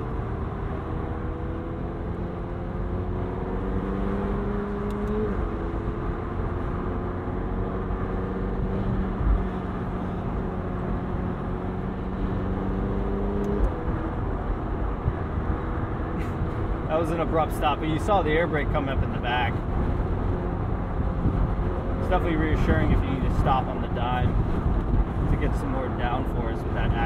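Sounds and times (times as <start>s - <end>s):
road noise: 0.0s - 27.0s
car engine running: 0.8s - 27.0s
wind noise: 8.4s - 10.4s, 19.0s - 27.0s.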